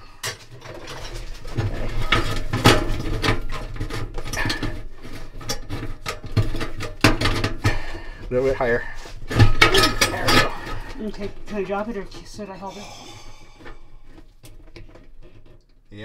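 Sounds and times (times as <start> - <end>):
metal clicks knocks and scrapes: 0.2 - 7.8, 9.2 - 12.4.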